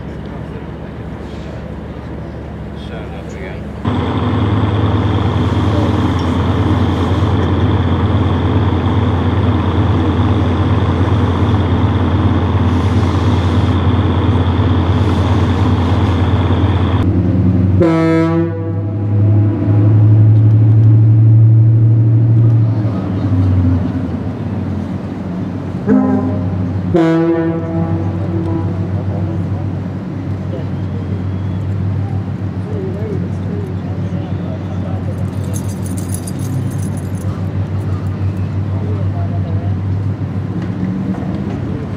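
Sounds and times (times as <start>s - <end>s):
low engine tone: 0.0s - 41.9s
heavy machinery drone: 3.7s - 31.5s
horn short blasts: 25.9s - 28.9s.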